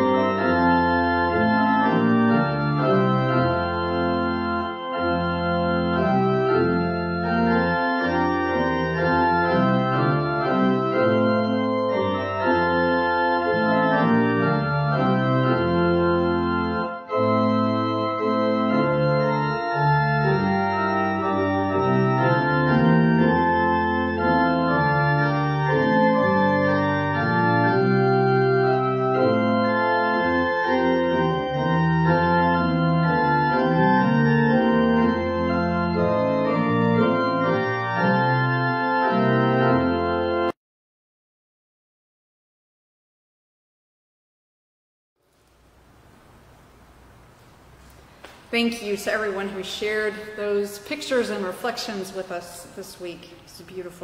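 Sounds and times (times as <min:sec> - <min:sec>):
organ chords: 0:00.0 - 0:40.6.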